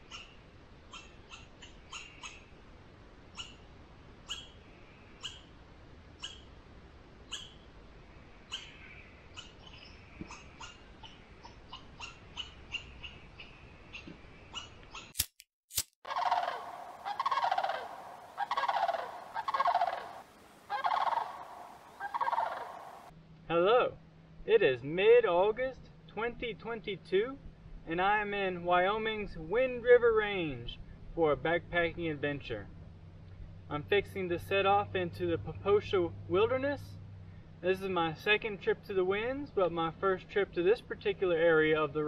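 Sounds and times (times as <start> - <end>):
high animal chirps: 16.1 - 23.1
rolling rattling animal calls: 16.1 - 23.1.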